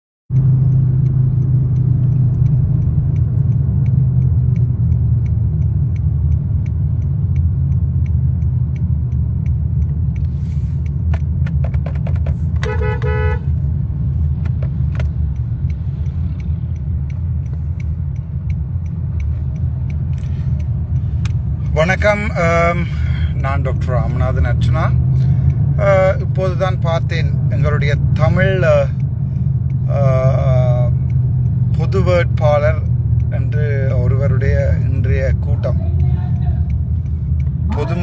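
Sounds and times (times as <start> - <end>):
car cabin road and engine rumble: 0.3 - 38.0
faint regular ticking: 0.3 - 38.0
pulsed car horn beeps: 12.3 - 13.8.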